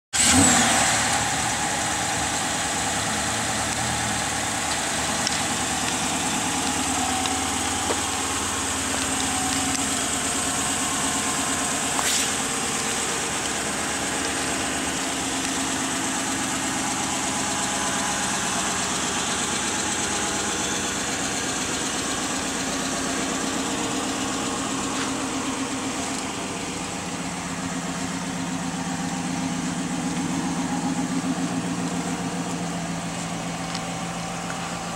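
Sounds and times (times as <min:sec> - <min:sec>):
car engine starting and idling: 0:00.1 - 0:34.9.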